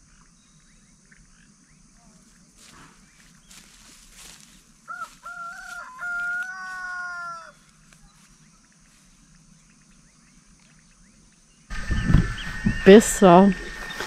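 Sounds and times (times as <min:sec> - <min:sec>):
rooster crowing: 0:04.9 - 0:07.6.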